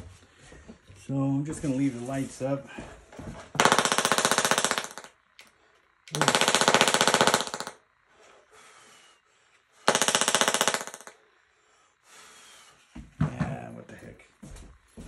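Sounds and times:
tesla coil spark buzzing: 3.5 - 8.2, 9.7 - 11.2.

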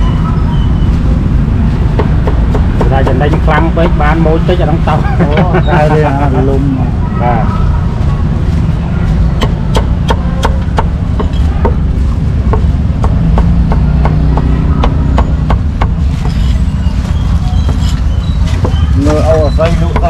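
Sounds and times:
cleaver chopping on wooden board: 1.9 - 3.4, 9.4 - 11.8, 12.5 - 16.0.

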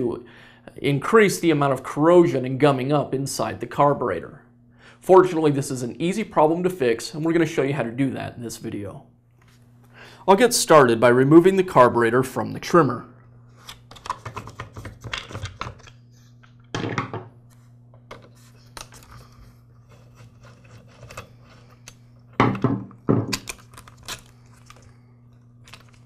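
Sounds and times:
plastic thunk: 16.7 - 17.3.

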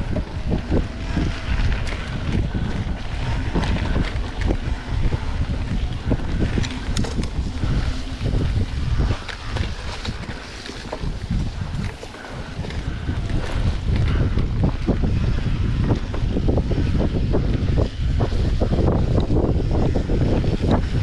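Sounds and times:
bike clicks and rattles: 0.0 - 21.0
bike tyres on dirt trail: 0.0 - 21.0
wind on microphone: 0.0 - 21.0.

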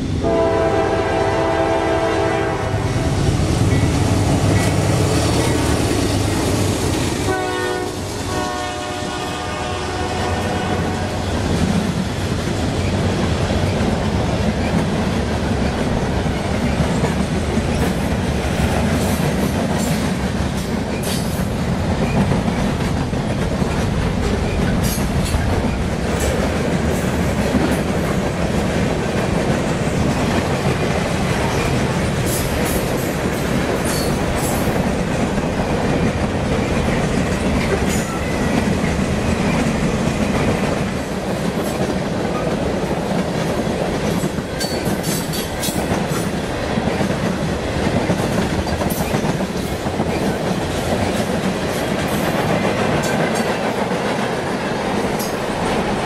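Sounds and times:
freight train wheels clattering: 0.0 - 56.0.

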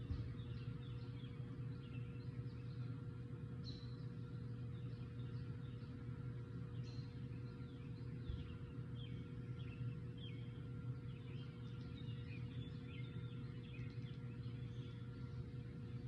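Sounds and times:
birds chirping: 0.0 - 16.0
steady low hum: 0.0 - 16.0.

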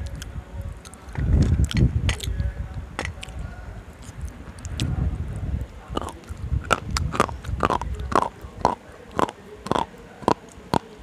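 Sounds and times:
teeth crunching slate pencils: 0.1 - 2.3, 5.9 - 11.0.

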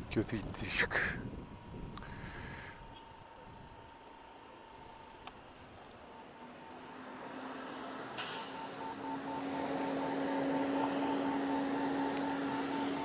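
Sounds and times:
scooter engine humming: 2.8 - 13.0.

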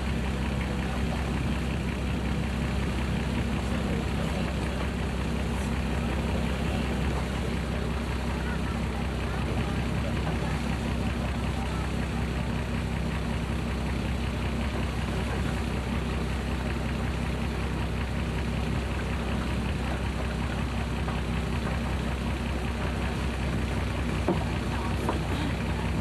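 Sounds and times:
boat engine humming: 0.0 - 26.0.

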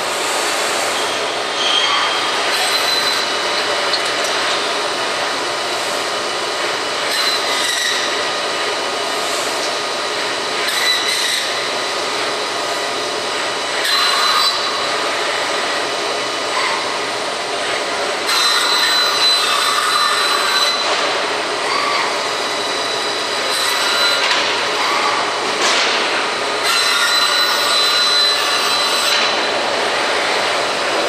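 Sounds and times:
bandsaw machine running: 0.0 - 31.0
high machine whine: 0.0 - 31.0.

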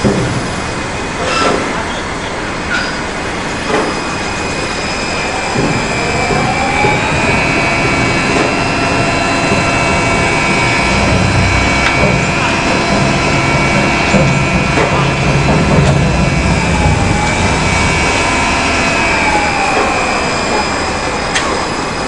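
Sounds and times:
crane hoisting with high whine: 0.0 - 22.0
low hum: 4.5 - 22.0.

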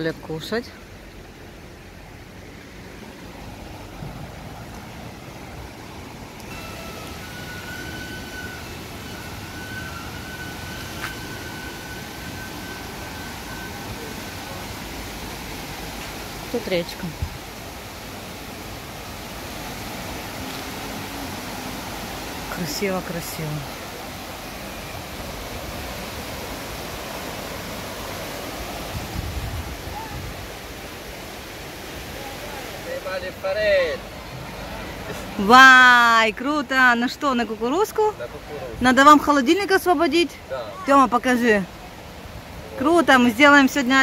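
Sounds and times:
river rushing over rapids: 0.0 - 44.0
faint high whistle-like tone: 6.5 - 14.6.

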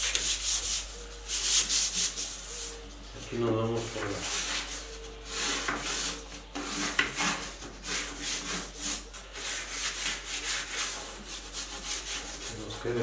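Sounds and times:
sandpaper rubbing on wood: 0.0 - 2.7, 4.2 - 12.8.

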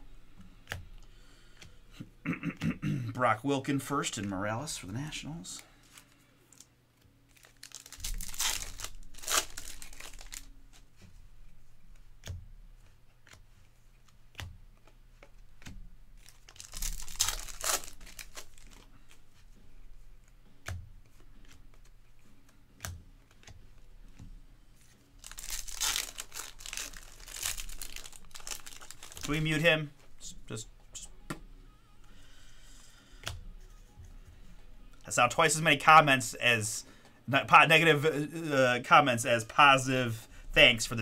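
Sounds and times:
foil wrappers tearing and crinkling: 7.3 - 10.5, 16.2 - 19.2, 25.2 - 29.7.

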